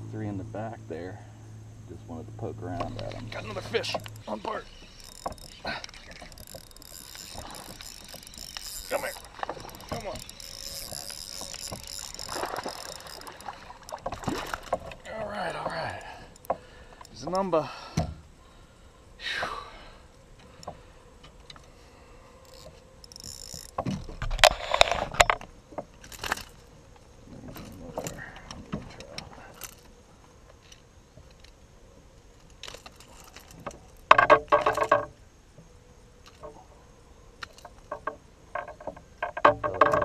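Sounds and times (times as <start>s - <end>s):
fishing gear clicking and rattling: 2.8s - 17.6s, 22.4s - 31.6s, 32.2s - 35.2s, 36.2s - 36.6s, 37.3s - 40.0s.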